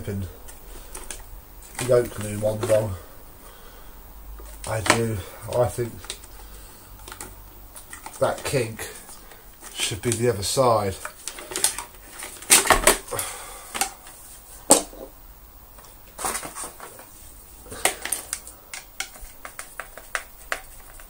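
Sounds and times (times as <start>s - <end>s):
plastic parts clicking and knocking: 0.4s - 3.0s, 4.4s - 10.2s, 11.0s - 13.1s, 13.7s - 15.1s, 17.7s - 21.0s.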